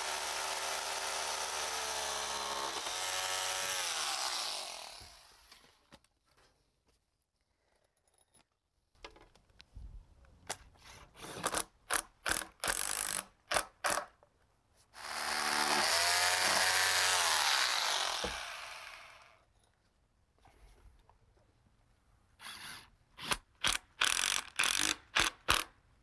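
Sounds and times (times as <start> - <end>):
power drill driving screws: 0.0 - 5.7, 15.0 - 19.4, 22.4 - 25.7.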